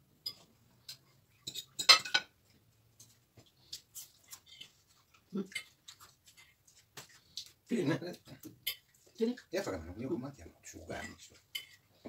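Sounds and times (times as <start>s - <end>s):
cutlery clinking on plates: 0.2s - 2.4s, 8.4s - 9.0s, 10.9s - 11.9s.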